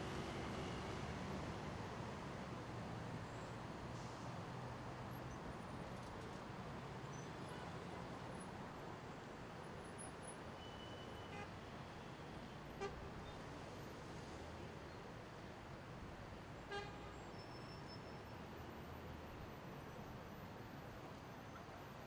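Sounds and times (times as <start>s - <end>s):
road traffic rumble: 0.0s - 10.2s.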